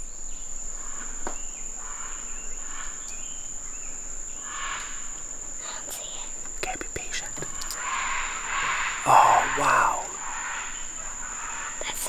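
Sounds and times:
insects buzzing: 0.0s - 12.0s
faint short calls: 7.0s - 10.8s.

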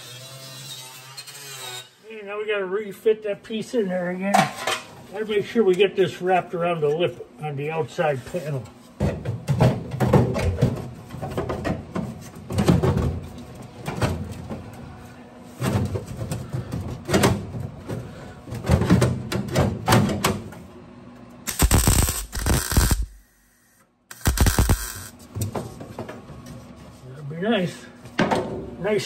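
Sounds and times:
crackling welding arc: 21.5s - 25.2s.

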